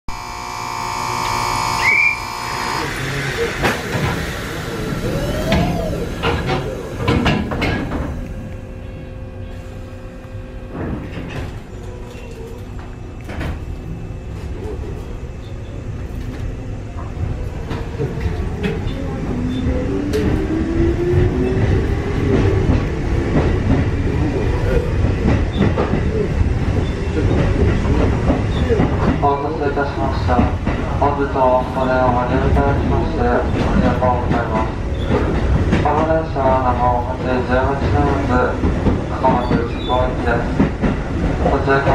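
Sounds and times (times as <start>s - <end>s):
high electronic tone: 0.1s - 2.9s
train car background hum: 0.1s - 41.9s
sharp knocks and clanks: 5.6s - 8.2s.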